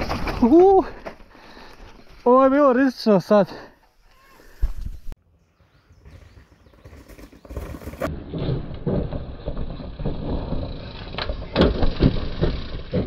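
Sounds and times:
mountain bike rattling over rough trail: 0.0 - 2.8, 5.9 - 13.0.

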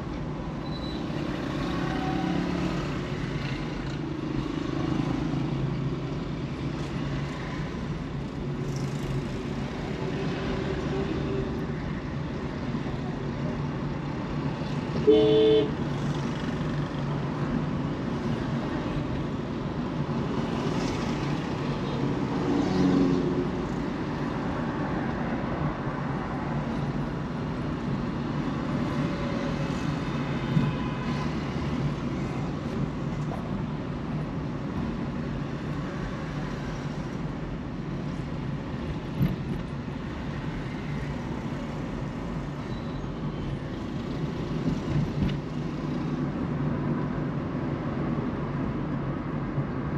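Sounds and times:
road and traffic noise: 0.0 - 49.9
vehicle horn: 15.0 - 15.8.

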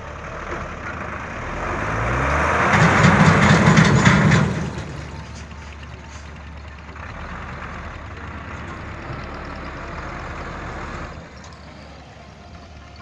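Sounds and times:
truck engine working hard: 0.0 - 13.0
wheels spinning in mud: 11.2 - 13.0.

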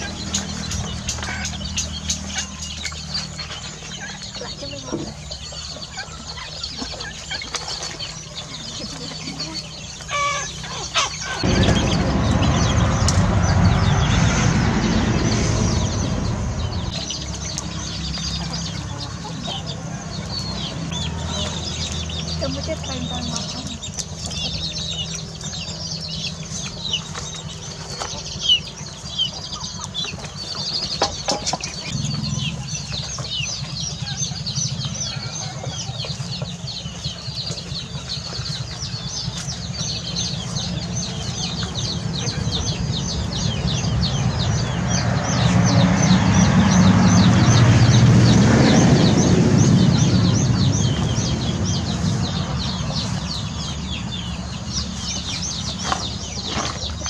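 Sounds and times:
chickens clucking: 0.0 - 13.5, 15.9 - 57.0
broad rush of noise: 9.6 - 22.1.

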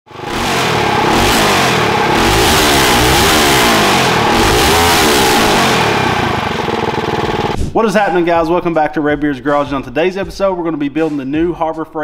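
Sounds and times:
loud small engine revving: 0.1 - 7.6.

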